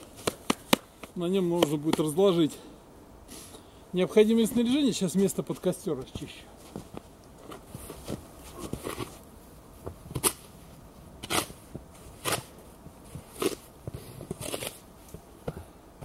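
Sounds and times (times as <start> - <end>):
footsteps crunching in snow: 5.2 - 14.8
wooden board scraping snow: 11.2 - 14.8.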